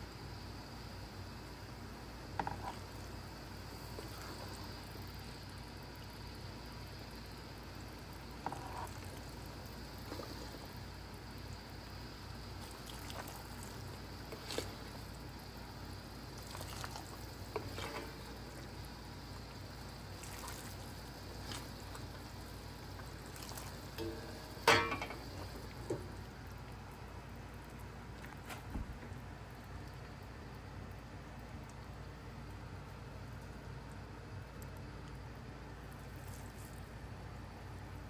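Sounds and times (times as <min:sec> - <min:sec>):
metal clink: 0:24.0 - 0:25.2.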